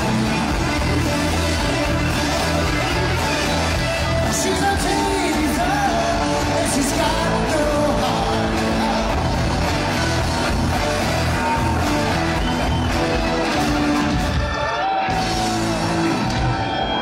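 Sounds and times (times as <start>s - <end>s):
person singing lead vocal: 0.0s - 12.2s
drums: 0.0s - 17.0s
electric guitars: 0.0s - 17.0s.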